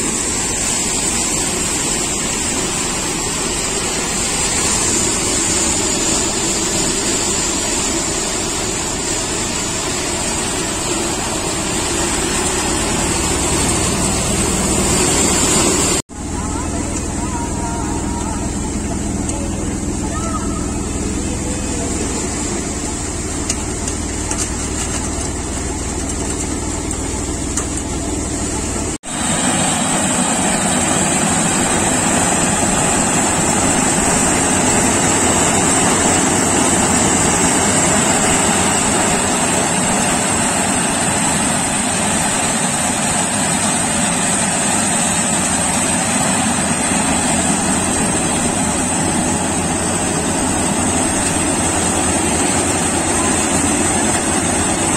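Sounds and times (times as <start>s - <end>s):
combine harvester running: 0.0s - 54.9s
steady high whine: 0.0s - 54.9s
thresher running: 0.0s - 54.9s.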